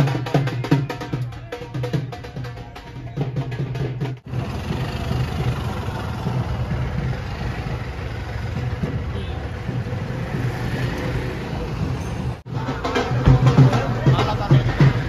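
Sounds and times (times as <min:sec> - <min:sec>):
vehicle engine running: 0:04.3 - 0:11.1.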